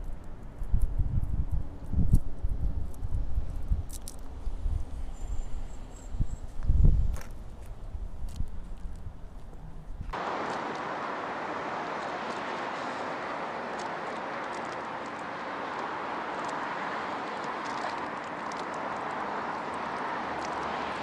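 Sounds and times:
steady hiss: 10.2s - 17.0s.

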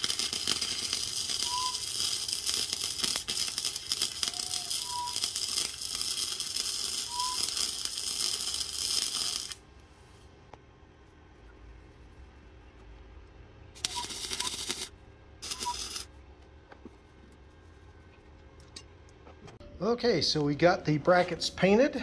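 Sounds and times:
welding arc crackling: 0.0s - 9.7s, 13.8s - 16.1s.

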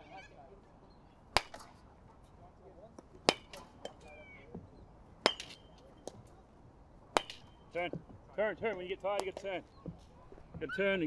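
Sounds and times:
baseball bat cracking balls: 1.3s - 1.9s, 2.9s - 6.3s, 7.1s - 10.6s.

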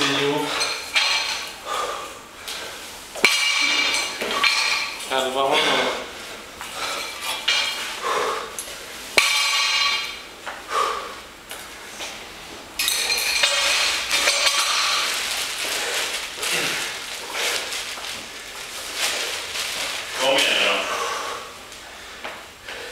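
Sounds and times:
metal bar and plates ringing: 0.0s - 1.6s, 3.2s - 6.0s, 6.9s - 7.8s, 9.2s - 10.3s, 12.8s - 15.2s
barbell dropped on gym floor: 3.2s - 5.0s, 9.2s - 10.2s.

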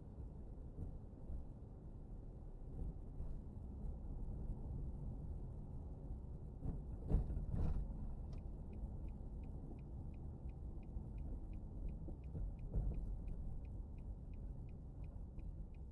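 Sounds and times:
car rumbling from inside: 7.5s - 15.9s
turn signal ticking: 8.3s - 15.9s.

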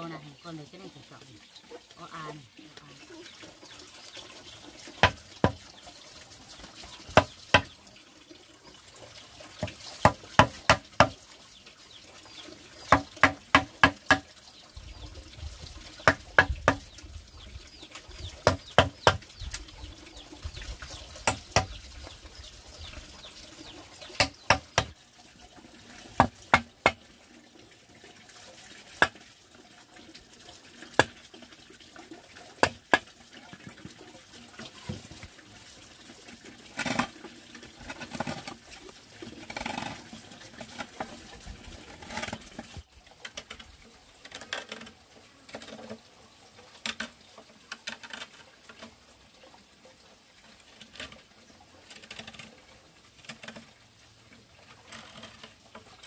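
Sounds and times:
mallet striking chisel: 21.3s - 21.7s, 24.2s - 24.9s.

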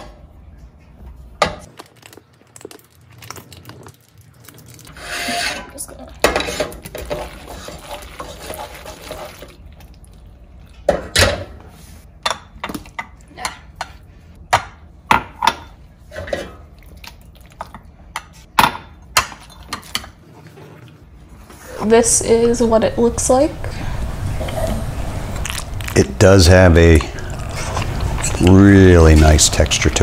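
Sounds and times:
wooden spoon stirring in saucepan: 1.8s - 10.0s.

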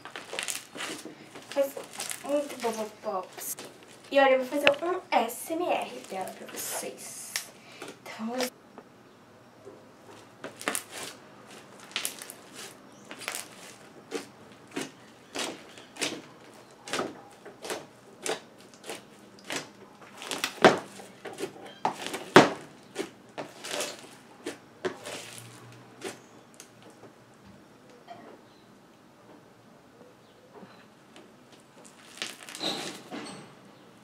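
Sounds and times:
slime crackling and popping: 0.0s - 4.8s, 10.5s - 26.7s, 31.8s - 33.0s.

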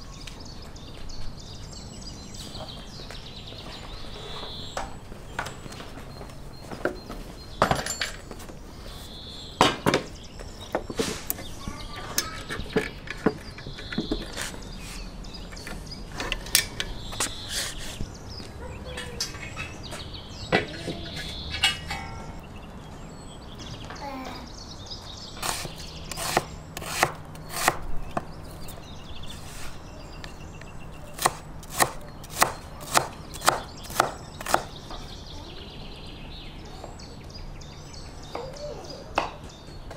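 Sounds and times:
knife chopping on wooden board: 25.4s - 28.2s, 31.2s - 34.7s.

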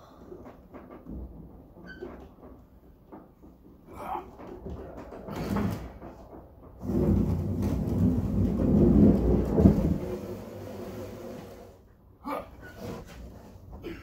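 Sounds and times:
heavy wooden slab scraping: 4.8s - 11.8s.

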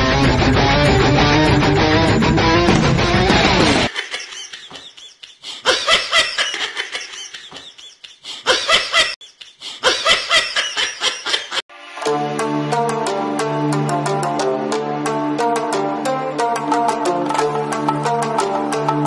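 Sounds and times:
person laughing: 3.8s - 11.6s
plucked-string music: 11.8s - 19.0s.

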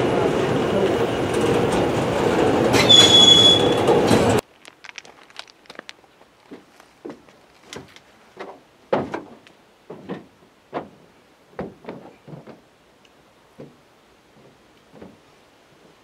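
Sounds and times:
train wheels clunking and squeaking: 1.3s - 4.4s.

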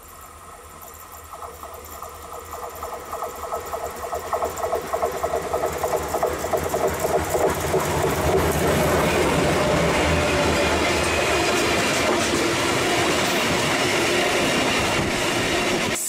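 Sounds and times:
rapid even ticking: 0.4s - 10.0s.

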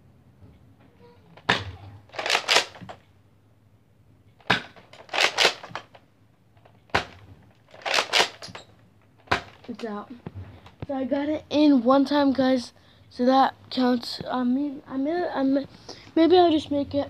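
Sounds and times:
toy blaster shots: 1.5s - 2.9s
plastic rattling clack: 6.6s - 9.9s.

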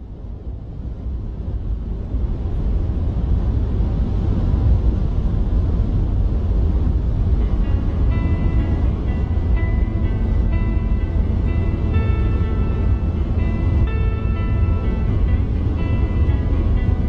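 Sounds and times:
deep noisy rumble: 0.0s - 17.0s
faint musical tones: 6.5s - 17.0s.

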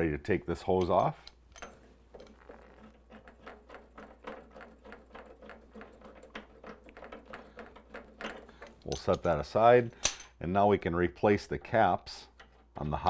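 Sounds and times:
metal coupling clicks and taps: 0.6s - 2.4s, 6.4s - 10.4s.

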